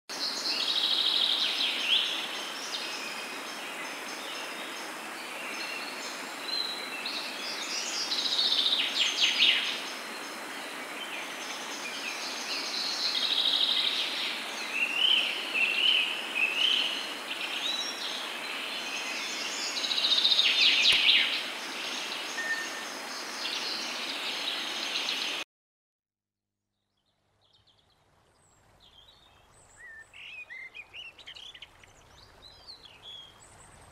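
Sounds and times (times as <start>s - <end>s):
birds singing and chirping: 5.4s - 25.4s.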